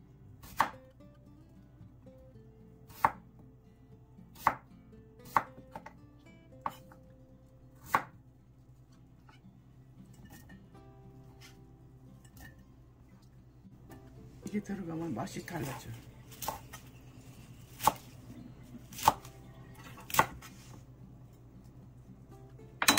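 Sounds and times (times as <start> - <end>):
knife chopping on wooden board: 4.4 - 4.6, 7.8 - 8.1, 16.4 - 16.7, 17.7 - 18.1, 18.9 - 19.3, 20.1 - 20.4.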